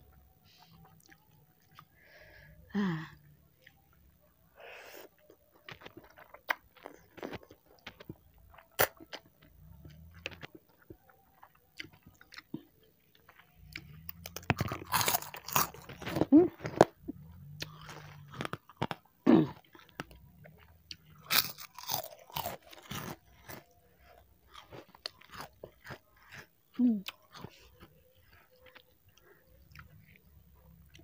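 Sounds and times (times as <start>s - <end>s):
wet chewing: 5.0s - 31.0s
crisp crunching: 13.3s - 19.1s, 21.2s - 23.8s.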